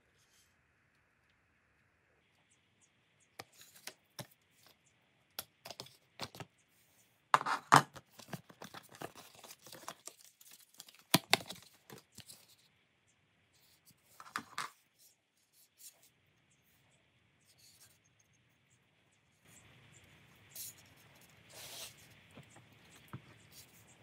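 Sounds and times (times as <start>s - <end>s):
packaging rustling: 5.4s - 6.4s, 7.4s - 12.6s
packaging tearing: 7.9s - 12.4s.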